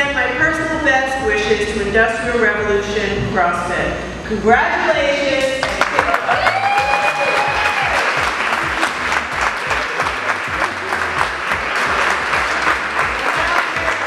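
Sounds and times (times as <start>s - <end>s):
audience applauding: 5.6s - 14.0s.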